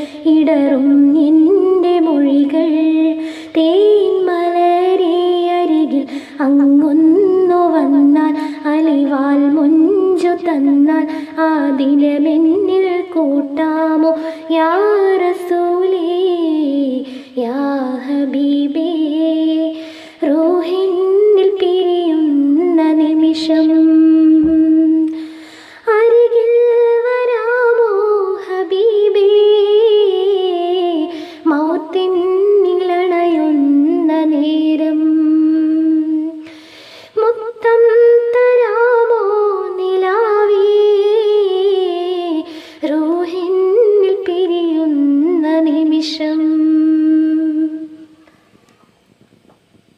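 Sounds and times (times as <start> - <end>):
woman singing unaccompanied: 0.0 - 48.2.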